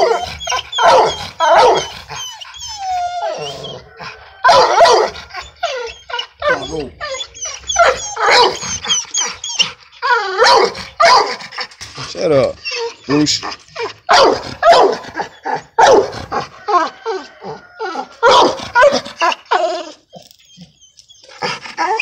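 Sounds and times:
dog barking loudly: 0.0s - 2.0s, 3.8s - 5.5s, 7.7s - 9.3s, 10.3s - 11.5s, 13.4s - 17.4s, 18.0s - 19.6s.

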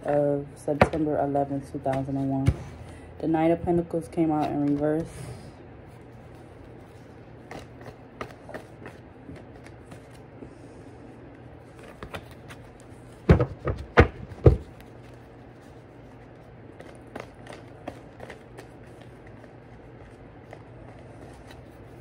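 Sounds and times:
cards being handled: 4.2s - 5.2s, 5.8s - 10.4s, 11.6s - 22.0s.

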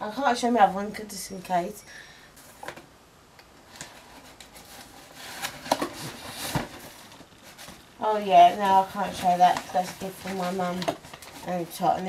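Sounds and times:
cardboard rustling and scraping: 3.7s - 12.0s.

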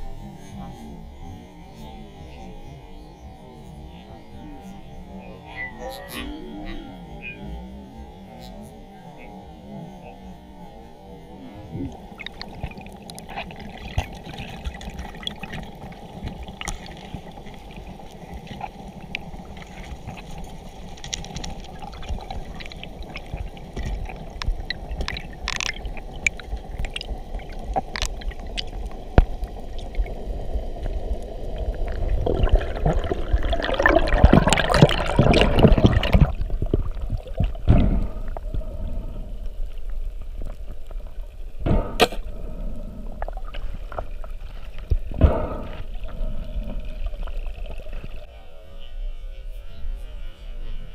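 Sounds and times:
low underwater rumble: 8.8s - 48.9s
underwater clicks and crackles: 11.7s - 48.3s.

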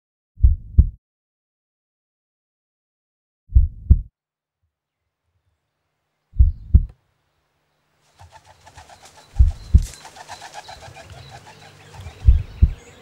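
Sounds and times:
faint birdsong: 4.8s - 13.0s
pigeon cooing: 8.2s - 13.0s.

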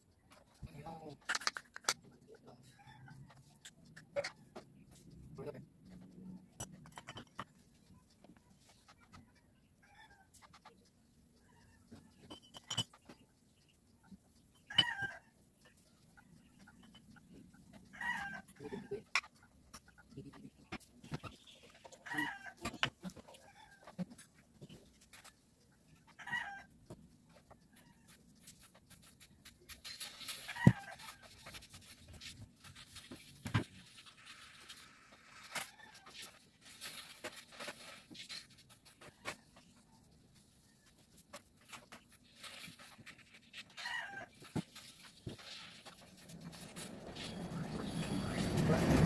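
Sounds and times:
chicken clucking: 2.0s - 29.7s.

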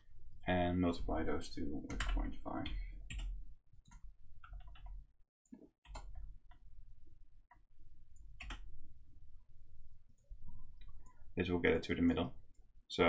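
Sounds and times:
keyboard and mouse clicks: 5.5s - 6.6s, 8.2s - 8.7s.

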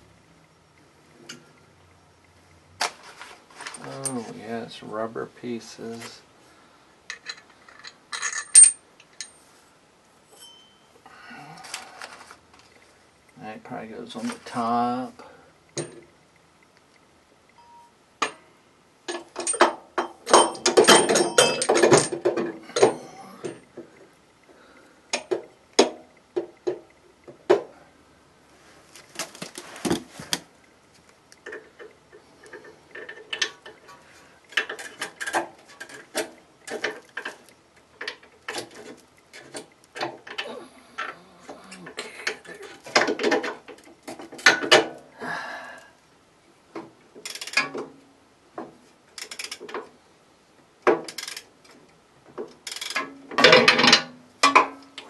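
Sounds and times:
metal tools clinking and knocking: 7.1s - 9.4s, 19.1s - 23.6s, 52.7s - 54.8s
metal clatter: 19.1s - 23.6s.

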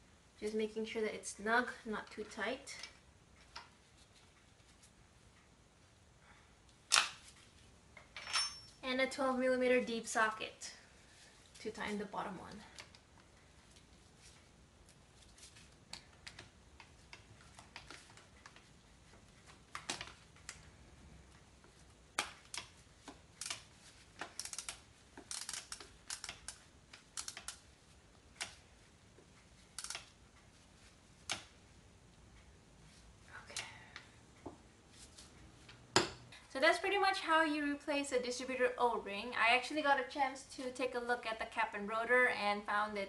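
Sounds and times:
ratchet clicking: 24.4s - 27.6s, 29.8s - 30.0s.

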